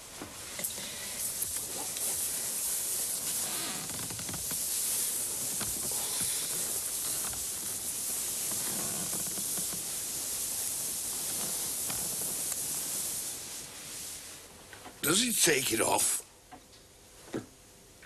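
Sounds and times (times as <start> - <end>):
steady hiss: 0.0 - 18.0
bedclothes rustling: 1.3 - 14.7.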